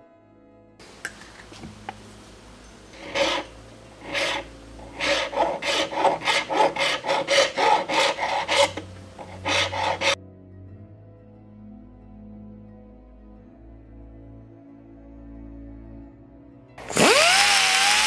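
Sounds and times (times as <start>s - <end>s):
file rasping on wood: 1.4s - 10.2s.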